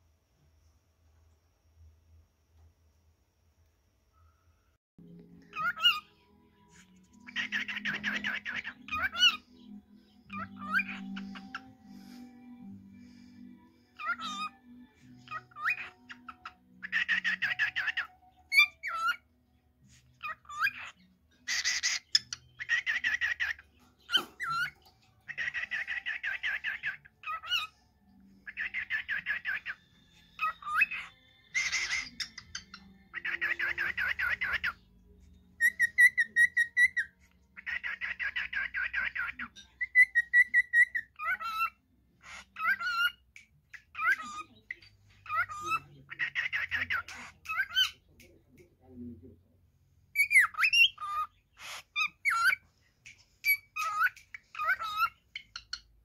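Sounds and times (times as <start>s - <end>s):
cockatiel chattering and whistling: 5.5s - 6.1s, 7.2s - 9.5s, 10.3s - 11.7s, 14.0s - 14.6s, 15.2s - 19.3s, 20.2s - 27.8s, 28.4s - 34.8s, 35.6s - 48.3s, 50.1s - 56.0s.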